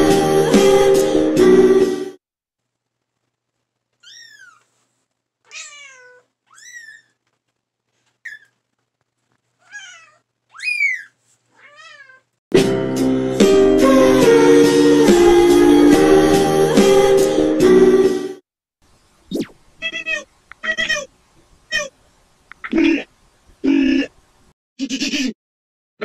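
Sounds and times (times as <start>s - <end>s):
music: 0.0s - 2.2s, 12.5s - 18.4s
kitten mewing: 4.0s - 4.7s, 5.5s - 7.2s, 9.6s - 12.2s, 19.8s - 21.1s, 21.7s - 22.0s.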